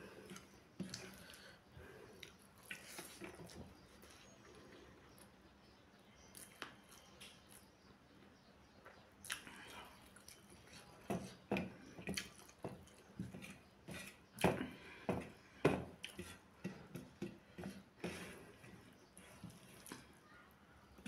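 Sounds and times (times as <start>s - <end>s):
wet squishes of hand mixing food: 0.0s - 4.5s, 9.2s - 14.8s
chewing mouth sounds: 9.2s - 10.9s.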